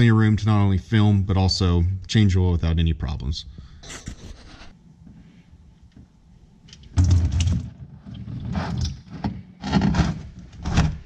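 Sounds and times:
plastic pan scraping: 7.0 - 11.0.

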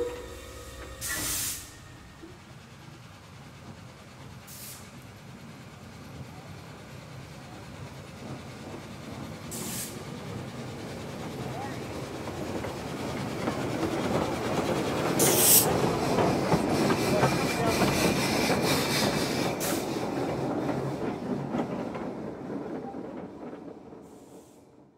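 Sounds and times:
steam hiss bursts: 0.0 - 2.3, 9.5 - 10.1, 15.2 - 15.7
steam train rumbling clatter: 0.0 - 24.9.

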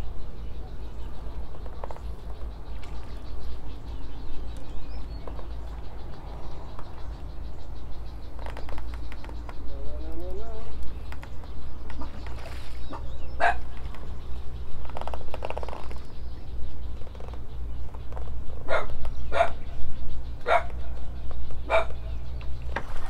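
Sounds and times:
dog barking: 13.4 - 13.6, 18.7 - 19.6, 20.5 - 20.7, 21.7 - 22.0.

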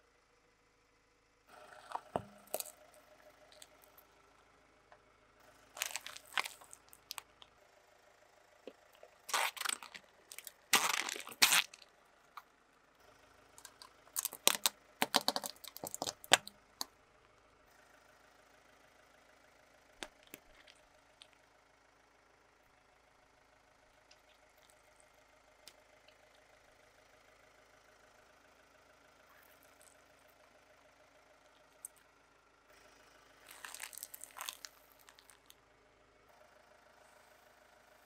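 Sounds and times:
plastic crunching under tyre: 1.7 - 4.0, 5.8 - 7.5, 8.7 - 12.4, 13.6 - 16.9, 20.0 - 21.4, 33.4 - 35.6.

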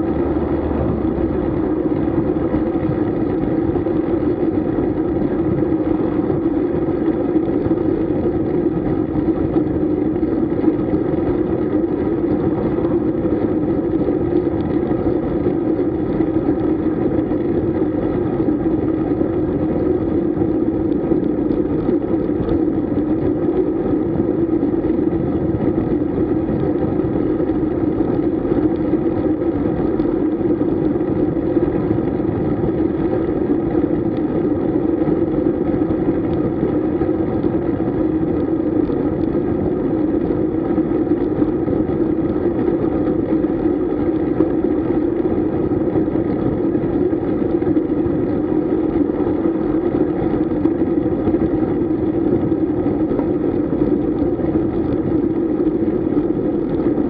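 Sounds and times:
wind and tyre noise: 0.0 - 57.0.

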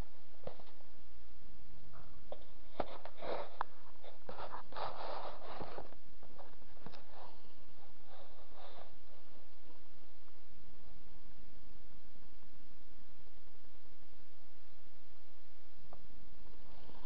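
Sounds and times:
box scraping on cloth: 4.3 - 5.9.

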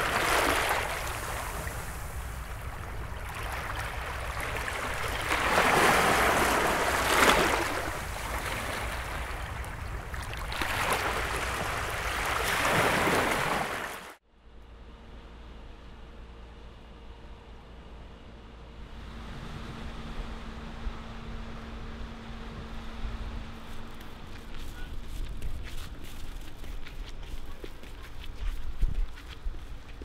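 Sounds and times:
sea waves washing: 0.0 - 14.2.

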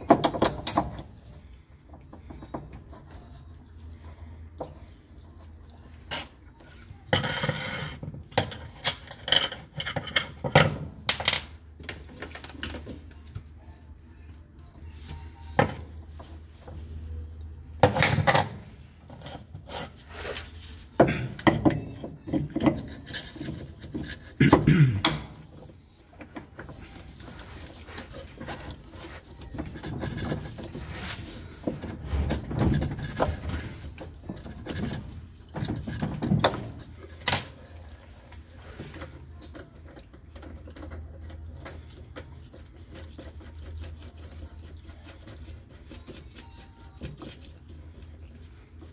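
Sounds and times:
plastic and metal parts clicking and knocking: 0.0 - 1.1.

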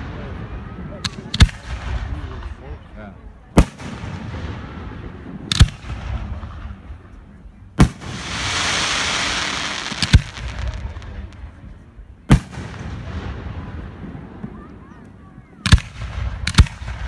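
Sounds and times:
fireworks hiss: 7.8 - 11.6
fireworks bangs: 7.8 - 14.9, 15.7 - 17.0.

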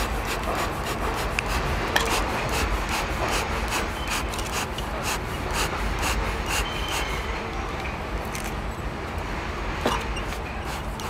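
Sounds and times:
bee smoker bellows puffing: 0.0 - 7.2.

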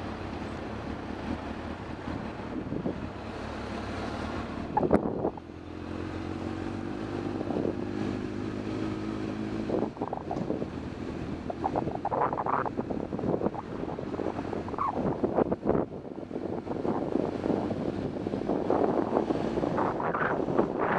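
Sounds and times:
wind on microphone: 4.7 - 5.4, 9.5 - 20.9.

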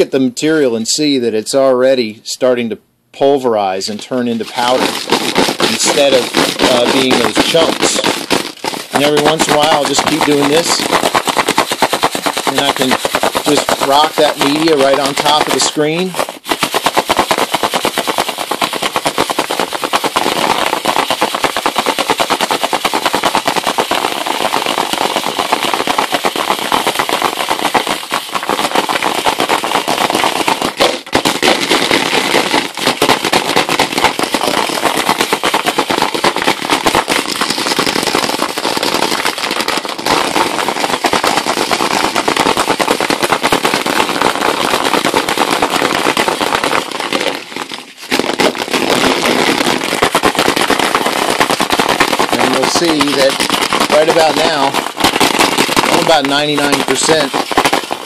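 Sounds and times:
ceramic media rattling in plastic jar: 8.8 - 15.8.

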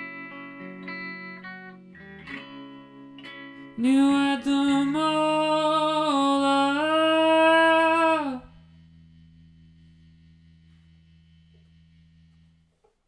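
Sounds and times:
man singing a held note: 3.8 - 8.6
faint low hum: 4.0 - 13.0.

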